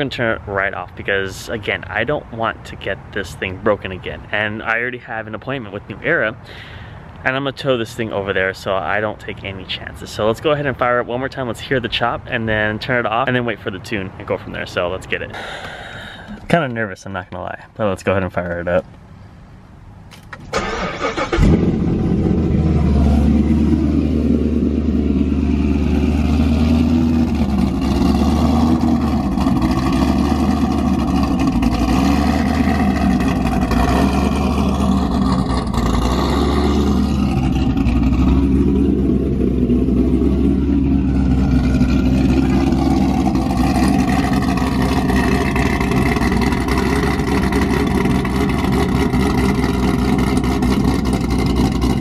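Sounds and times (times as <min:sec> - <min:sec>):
car engine starting and idling: 0:20.0 - 0:52.0.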